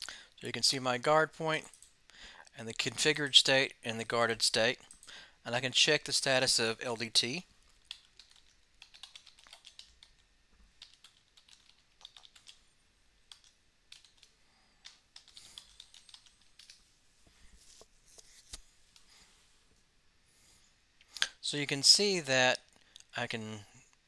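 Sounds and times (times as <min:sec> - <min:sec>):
keyboard typing: 0:07.8 - 0:10.2, 0:10.8 - 0:12.6, 0:13.3 - 0:16.8.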